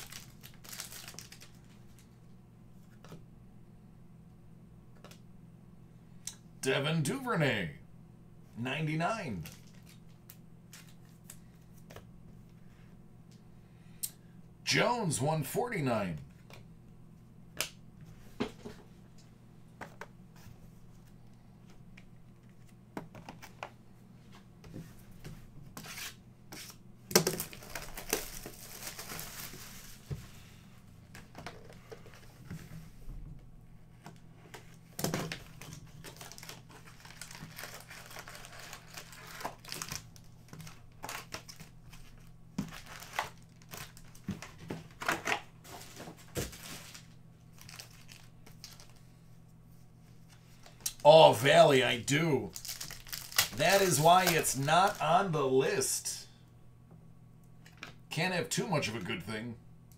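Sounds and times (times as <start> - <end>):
card pack wrappers crinkling and tearing: 0.0 - 2.1, 9.4 - 11.6, 27.2 - 30.0, 35.2 - 49.0, 52.1 - 55.1.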